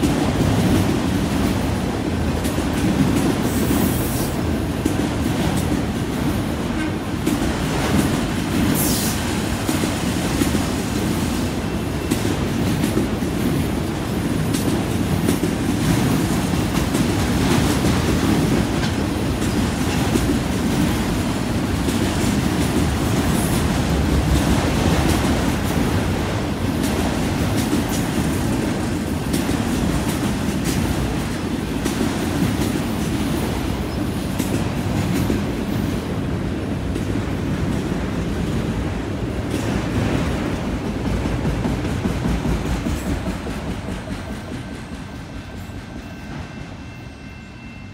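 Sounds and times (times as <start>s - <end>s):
freight train rumbling past: 0.0s - 47.9s.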